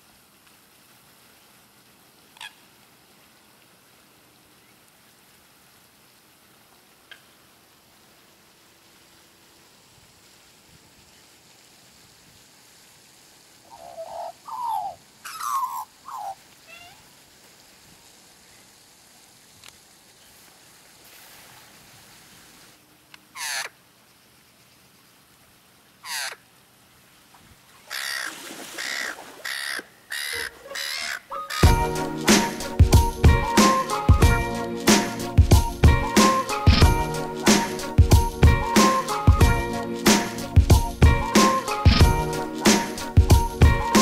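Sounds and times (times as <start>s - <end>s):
magpies warbling: 13.7s - 17.0s, 23.4s - 23.7s, 26.0s - 26.4s, 27.9s - 32.7s
magpie harsh squawks: 23.4s - 23.7s, 26.0s - 26.4s, 27.9s - 31.8s
magpie rasping calls: 23.4s - 23.7s, 26.0s - 26.4s, 27.9s - 31.6s.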